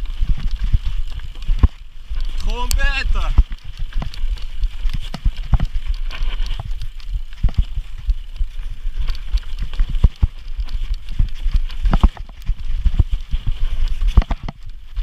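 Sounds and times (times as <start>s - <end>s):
steady low rumble: 0.0s - 15.0s
bike frame knocking and rattling: 3.3s - 15.0s.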